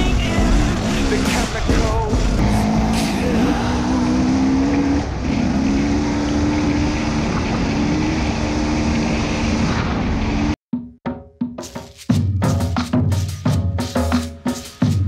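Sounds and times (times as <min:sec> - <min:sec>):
dirt bike engine revving: 0:00.0 - 0:10.6.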